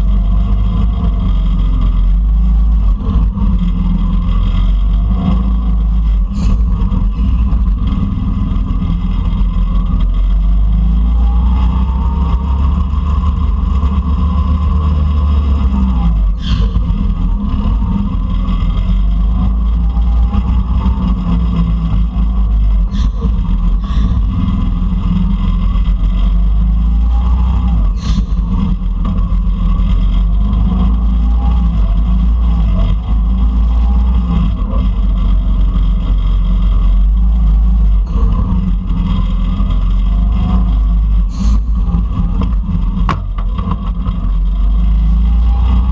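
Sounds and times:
go-kart engines racing: 0:00.0 - 0:45.9.

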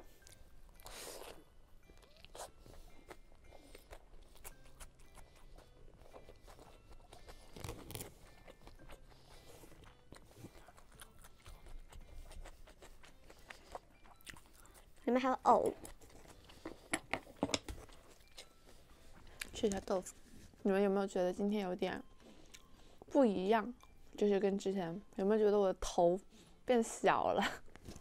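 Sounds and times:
person chewing food: 0:00.0 - 0:20.6, 0:22.0 - 0:23.1.

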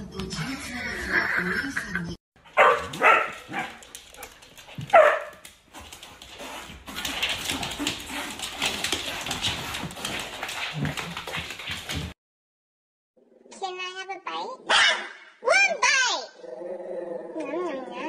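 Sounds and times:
dog yapping: 0:02.5 - 0:05.4, 0:14.7 - 0:15.2.

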